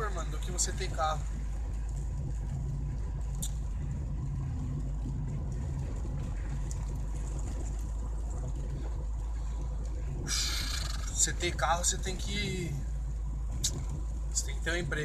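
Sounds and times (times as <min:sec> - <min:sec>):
car engine and tyres rumbling: 0:00.0 - 0:15.0.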